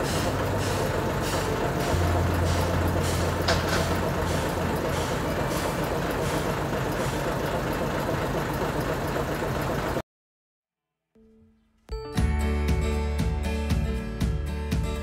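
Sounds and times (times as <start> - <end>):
low hum: 0.0 - 7.7
steam hissing: 0.0 - 8.0.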